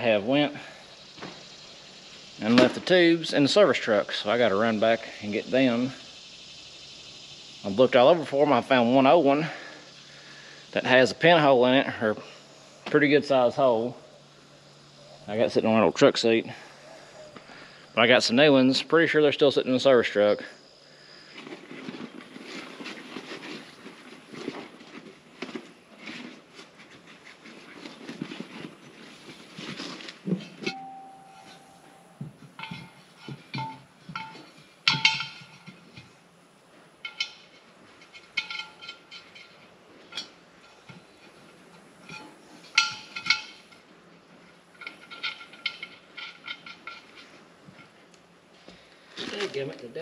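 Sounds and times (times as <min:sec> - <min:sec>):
metallic clinks on wheel rim: 0:30.2 - 0:48.1
tire knocking on metal rim: 0:30.6 - 0:36.2.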